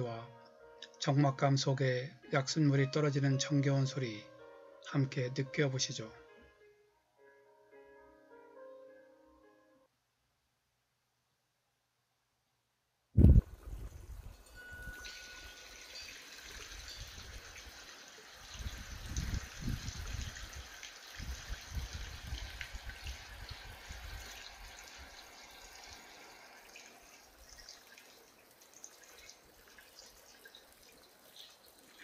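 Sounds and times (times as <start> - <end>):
wind rumbling on microphone: 13.2 - 15.0, 18.5 - 24.7
water dripping and trickling: 13.4 - 32.0.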